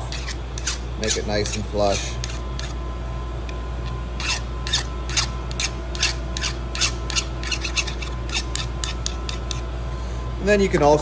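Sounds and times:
hand file scraping metal pipe: 0.0s - 2.8s, 4.2s - 9.7s.

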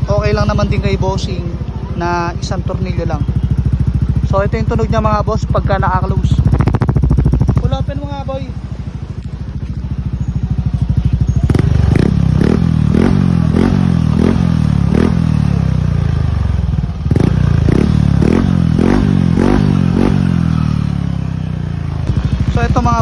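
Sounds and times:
scooter engine revving: 0.0s - 23.0s.

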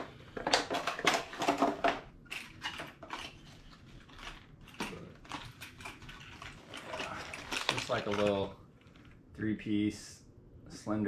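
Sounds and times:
packaging crinkling and rustling: 0.4s - 9.2s.

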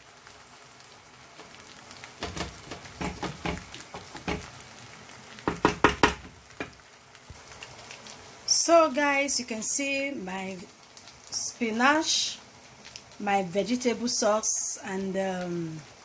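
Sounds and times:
wooden spoon knocking metal pot: 2.2s - 4.5s, 5.5s - 6.8s.

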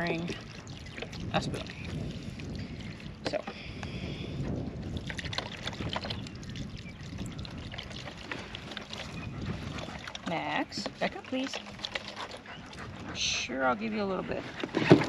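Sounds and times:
wind on microphone: 0.0s - 11.4s, 12.4s - 15.0s
liquid pouring into pot: 4.8s - 9.2s.

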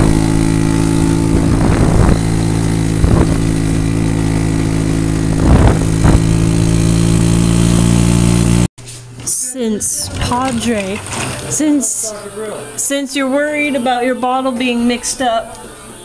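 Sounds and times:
go-kart engine running: 0.0s - 8.7s.

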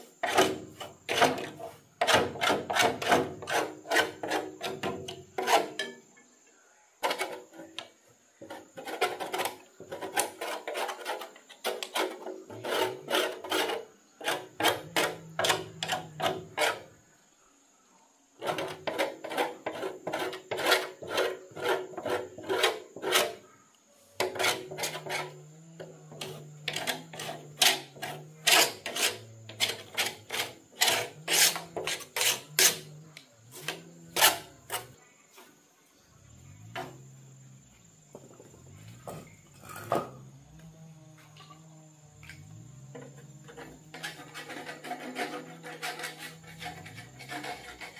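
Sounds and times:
stiff brush scrubbing rusty metal: 0.0s - 6.0s, 7.0s - 17.1s, 18.4s - 23.5s, 24.2s - 35.0s, 42.9s - 47.9s.

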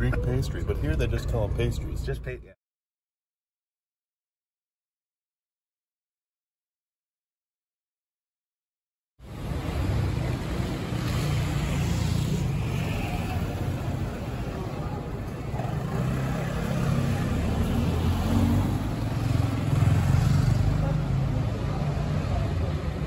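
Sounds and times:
motor vehicle engines rumbling: 0.0s - 2.6s, 9.2s - 23.0s
road noise: 0.0s - 2.6s, 9.2s - 23.0s.

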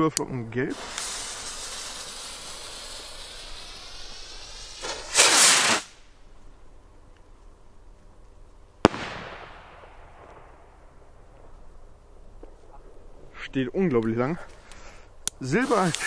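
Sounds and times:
firework rocket whooshing: 0.7s - 6.1s, 14.8s - 16.0s
firework bang: 4.6s - 5.9s, 8.8s - 11.0s.

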